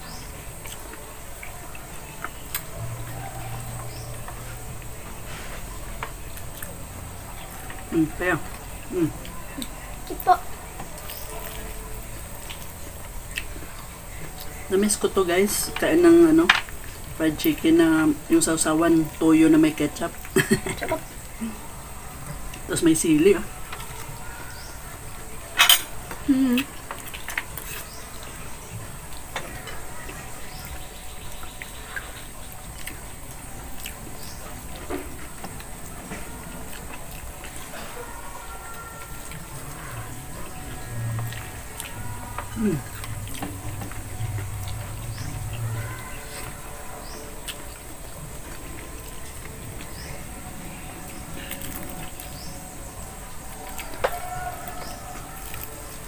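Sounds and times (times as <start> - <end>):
chewing: 0.3 - 22.7, 23.4 - 56.0
person humming: 26.3 - 26.7, 42.5 - 43.3
tearing crispy fried chicken: 53.6 - 56.0.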